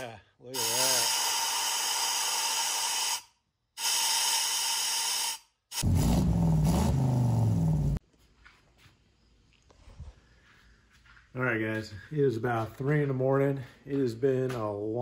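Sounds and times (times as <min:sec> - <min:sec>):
compressed air blow gun hissing: 0:00.6 - 0:05.4.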